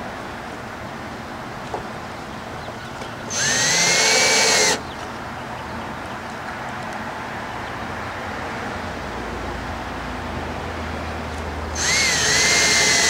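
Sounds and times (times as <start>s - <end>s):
electric drill motor whining: 3.3s - 4.8s, 11.8s - 13.0s.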